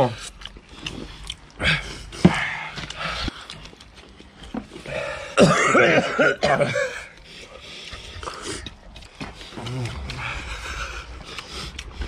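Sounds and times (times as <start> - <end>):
drawn-out vocal noise: 4.9 - 12.0
man clearing his throat: 5.3 - 7.1
man coughing: 5.3 - 7.1.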